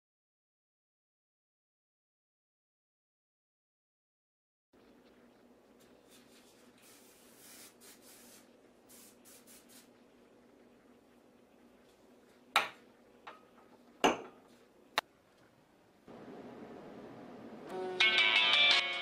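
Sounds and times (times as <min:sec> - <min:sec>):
soft rustling: 0:04.8 - 0:12.5.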